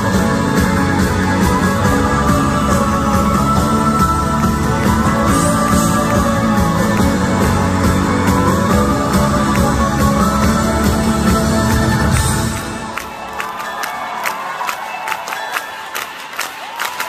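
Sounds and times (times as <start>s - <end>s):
live rock band: 0.0s - 13.4s.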